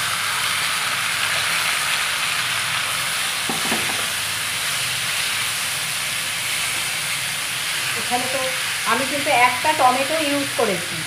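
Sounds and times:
chicken sizzling in hot oil: 0:00.0 - 0:11.0.

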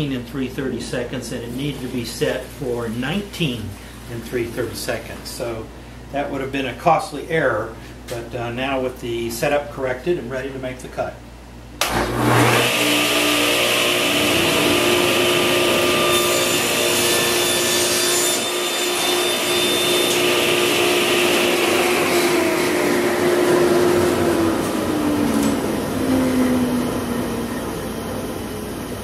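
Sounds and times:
saw motor winding down: 0:11.8 - 0:29.0
table saw cutting wood: 0:11.8 - 0:29.0.

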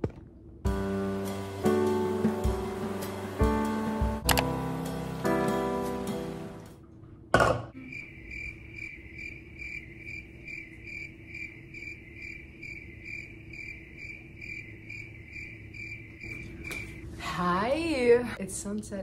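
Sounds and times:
music: 0:00.7 - 0:06.8
crickets chirping: 0:07.7 - 0:17.2.

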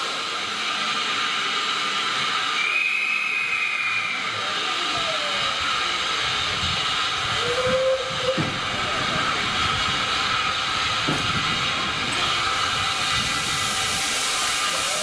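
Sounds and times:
steam locomotive hissing: 0:00.0 - 0:15.0
brief squeal: 0:02.6 - 0:04.3.

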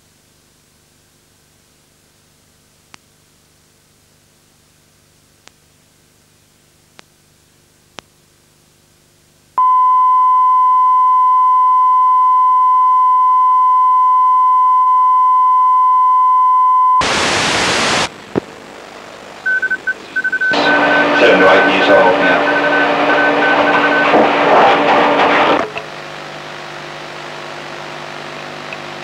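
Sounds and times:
click: 0:02.9 - 0:03.1, 0:07.9 - 0:08.1
short beeps: 0:09.6 - 0:17.0, 0:19.5 - 0:25.2
steady test tone: 0:09.6 - 0:17.2, 0:19.4 - 0:25.8
loud hiss: 0:17.0 - 0:18.1.

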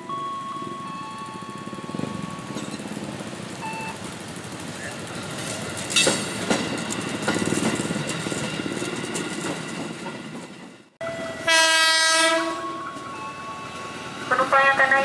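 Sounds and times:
electric train running past: 0:00.0 - 0:15.0
wheels clacking over rail joints: 0:00.6 - 0:10.9
train horn blast: 0:11.0 - 0:12.9, 0:14.3 - 0:15.0.

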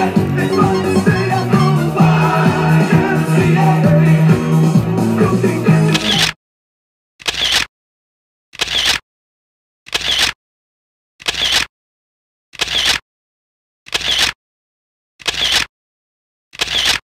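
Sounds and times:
stuttering background music loop: 0:00.0 - 0:05.2.

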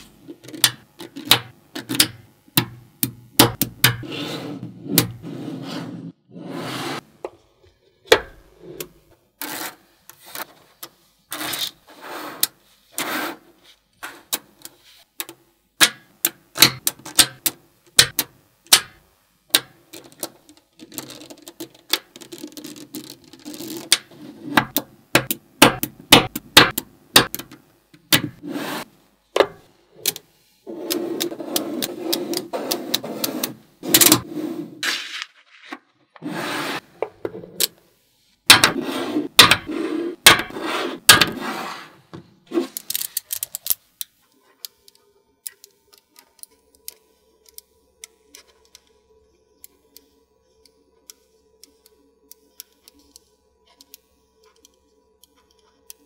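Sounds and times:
balls rattling and rubbing: 0:19.8 - 0:24.8, 0:38.5 - 0:43.9
magnetic balls clicking together: 0:42.7 - 0:49.0.

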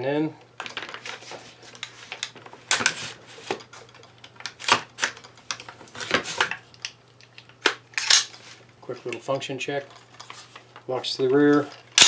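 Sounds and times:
rifle parts clicking and clacking: 0:01.7 - 0:08.4, 0:09.0 - 0:12.0.

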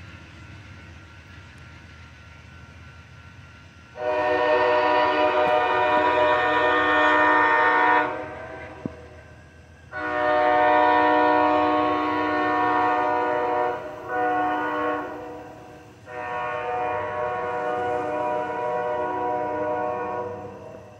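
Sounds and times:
train horn blasts: 0:04.0 - 0:09.3, 0:09.9 - 0:20.9.

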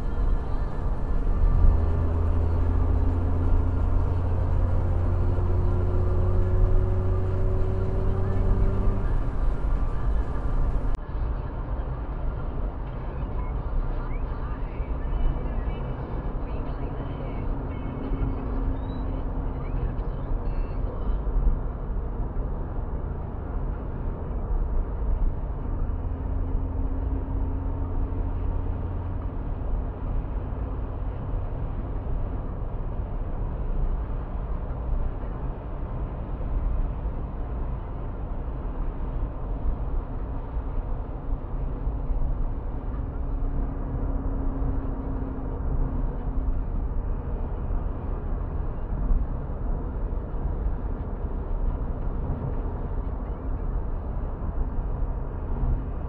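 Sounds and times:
faint hum: 0:00.0 - 0:11.0
car road and engine rumble: 0:00.0 - 0:56.0.

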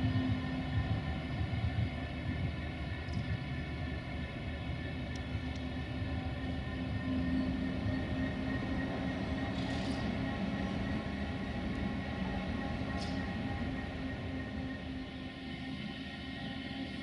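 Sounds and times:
train diesel engine running: 0:00.0 - 0:17.0.

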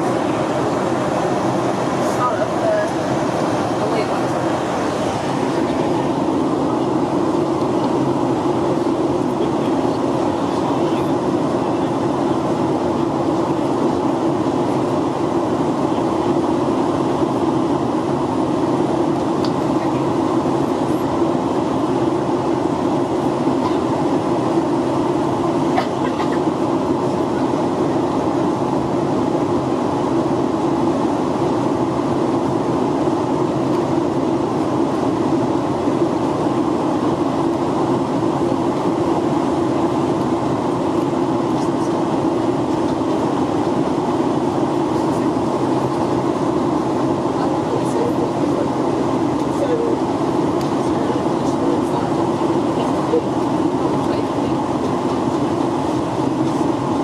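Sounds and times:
airplane cabin noise: 0:00.0 - 0:57.0.

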